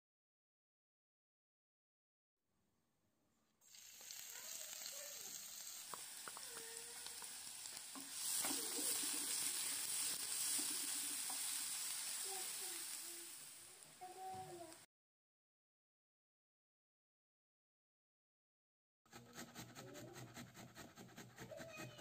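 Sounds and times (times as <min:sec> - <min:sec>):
onion sizzling in oil: 0:03.6 - 0:14.9
plastic spoon scraping pan: 0:19.1 - 0:22.0.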